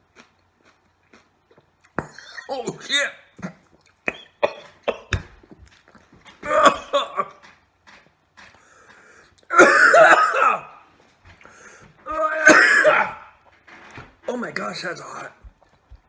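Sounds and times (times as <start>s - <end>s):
man coughing: 2.2s - 5.2s, 6.4s - 7.4s, 9.5s - 10.8s, 12.2s - 13.3s.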